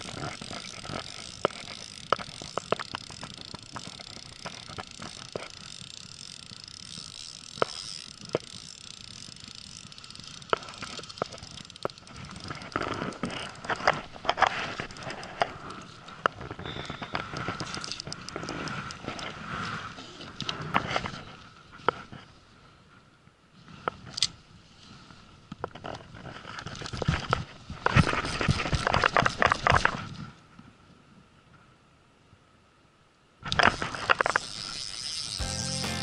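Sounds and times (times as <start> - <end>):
fishing reel clicks and taps: 0.0 - 12.4, 33.5 - 36.0.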